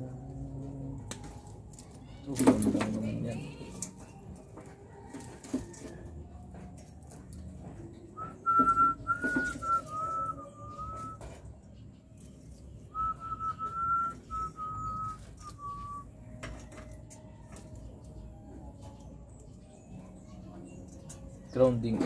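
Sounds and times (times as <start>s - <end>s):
person whistling a tune: 8.2s - 11.3s, 12.9s - 16.1s.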